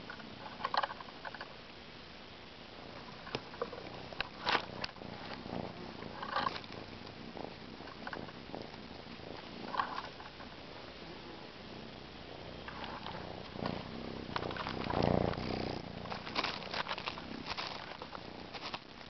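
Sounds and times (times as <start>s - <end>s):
dry leaves and twigs crackling: 6.1s - 6.8s, 12.7s - 19.0s.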